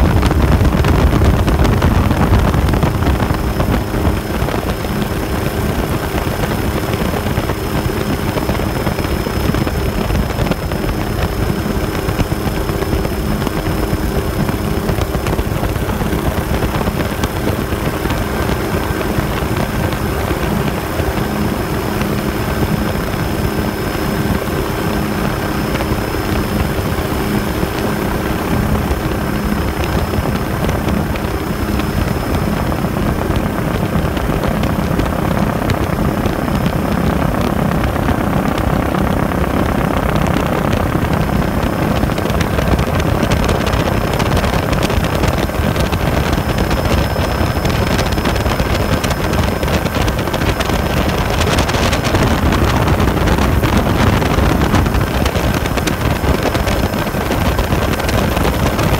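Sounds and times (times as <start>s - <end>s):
faint high whine: 0.0s - 58.9s
helicopter rotor and engine: 0.0s - 58.9s
wind rushing over microphone: 0.0s - 58.9s.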